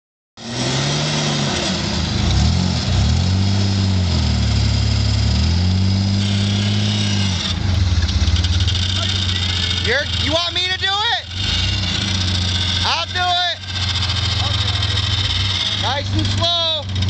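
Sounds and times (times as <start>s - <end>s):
suv engine revving: 0.4s - 17.0s.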